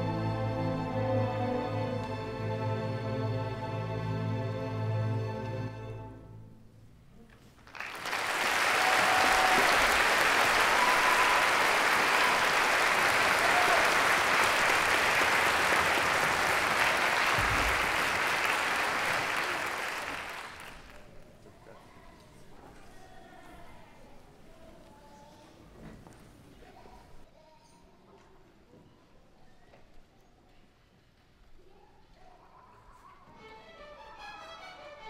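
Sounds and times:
audience applauding: 7.6 - 21.2.

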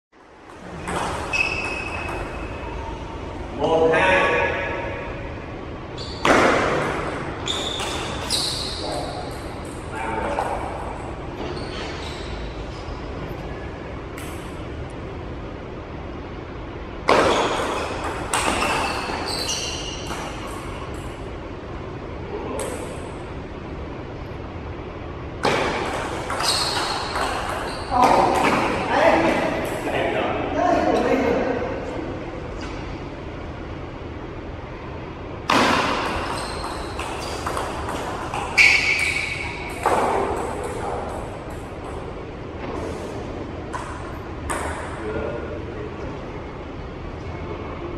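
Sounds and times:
high squeaks: 0.8 - 3.1, 7.4 - 9.8, 11.4 - 12.9, 17.2 - 21.1, 25.9 - 28.6, 35.9 - 41.2
loud bangs echoing in a hall: 6.2 - 8.2
table tennis ball hits: 6.2 - 8.3, 17.1 - 19.3, 25.4 - 28.9, 35.5 - 42.1, 43.7 - 45.0.

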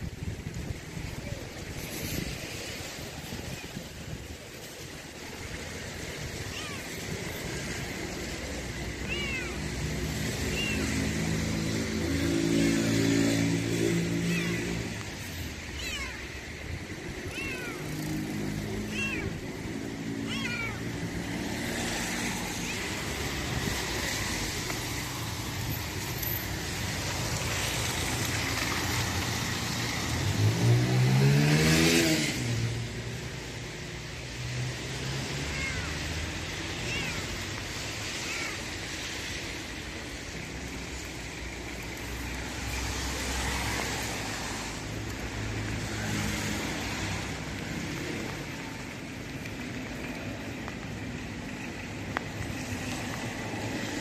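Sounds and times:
cars passing: 0.0 - 54.0
kitten meowing: 6.5 - 6.9, 9.0 - 9.6, 10.5 - 10.8, 14.3 - 14.7, 15.8 - 16.3, 17.3 - 17.8, 18.9 - 19.4, 20.2 - 20.8, 35.5 - 36.0, 36.7 - 37.4.

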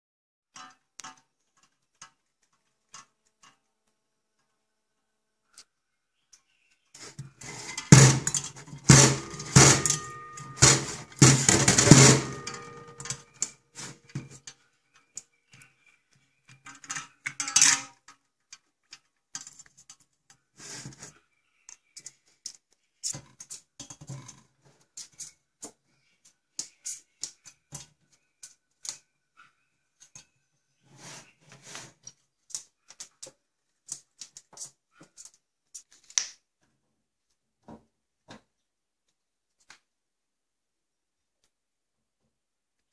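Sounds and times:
parrot rattling saucepan in sink: 7.5 - 13.4.

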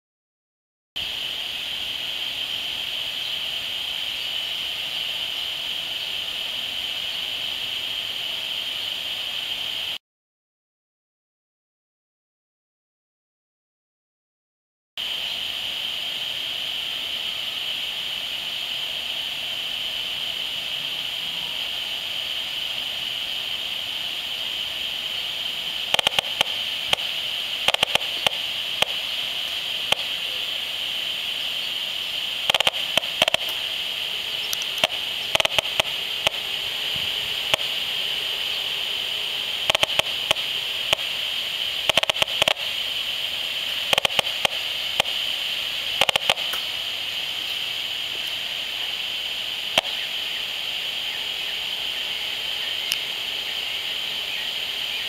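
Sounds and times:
steady high hiss: 1.0 - 10.0, 15.0 - 55.0
loudspeaker crackling clicks: 25.9 - 30.2, 32.4 - 37.9, 39.6 - 42.9, 43.8 - 45.2, 45.9 - 46.8, 49.7 - 50.0.

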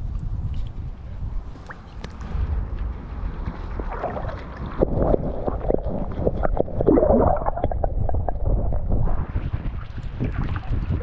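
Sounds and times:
muffled underwater gurgling: 3.8 - 11.0.

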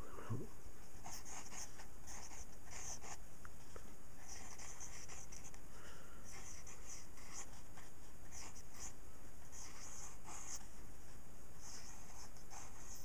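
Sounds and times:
faint background hiss: 0.0 - 13.0
pencil scratching on paper: 1.0 - 3.2, 4.2 - 5.6, 6.3 - 10.7, 11.6 - 13.0.

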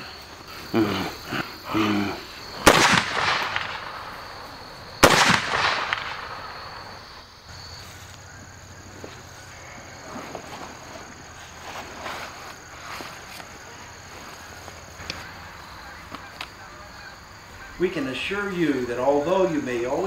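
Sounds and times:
man groaning: 0.7 - 2.3
echoing gunshots: 2.5 - 7.4.

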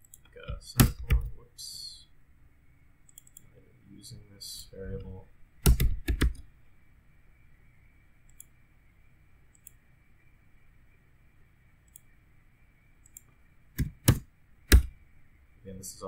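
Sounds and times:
computer keyboard keystrokes: 3.1 - 3.5, 5.6 - 6.4, 13.0 - 14.9.

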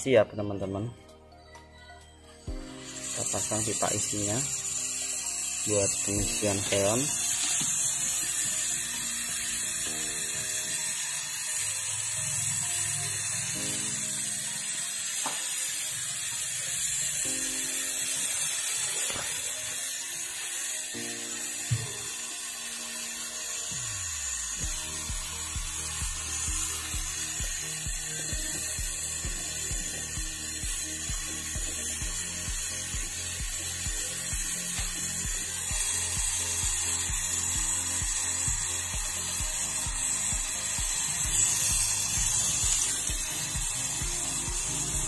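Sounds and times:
background music chords: 0.0 - 45.0
torch flame hissing: 2.4 - 45.0.

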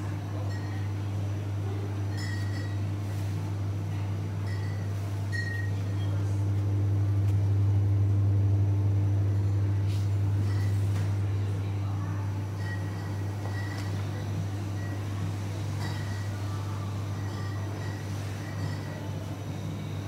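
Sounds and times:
chiller electrical hum: 0.0 - 20.0.

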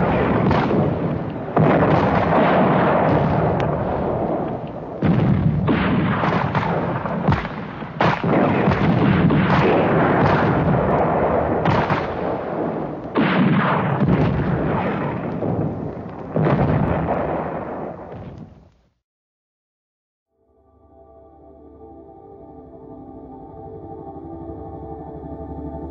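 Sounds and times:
gunshots: 0.0 - 18.5
explosions: 0.0 - 18.7.

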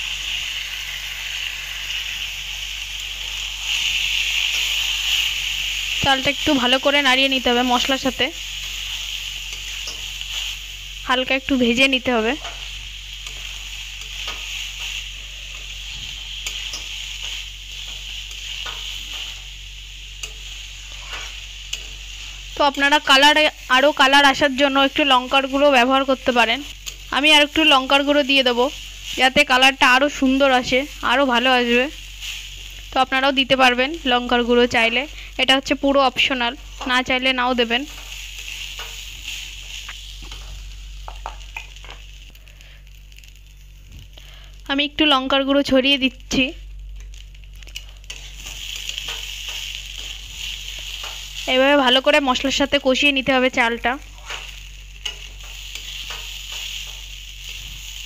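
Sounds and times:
rice sizzling in oil: 0.0 - 58.0.

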